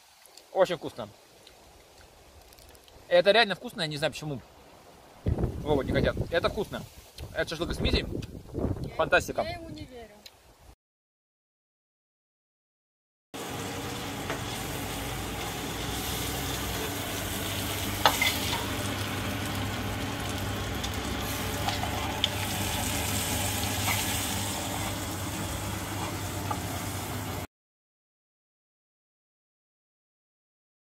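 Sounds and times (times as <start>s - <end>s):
meat sizzling in oil: 13.4s - 27.5s.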